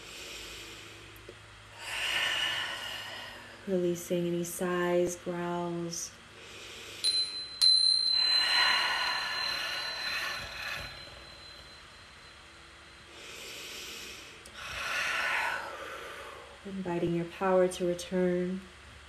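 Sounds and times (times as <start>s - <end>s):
woman exhaling breathily: 1.8s - 3.7s, 8.2s - 11.8s, 13.1s - 16.6s
light tap with high ring: 7.0s - 12.5s.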